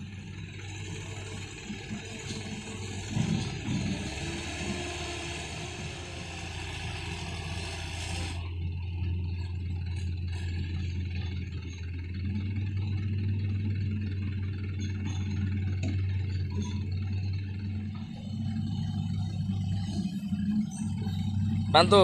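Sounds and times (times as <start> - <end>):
diesel engines droning: 0.0 - 22.0
hiss: 4.9 - 8.4.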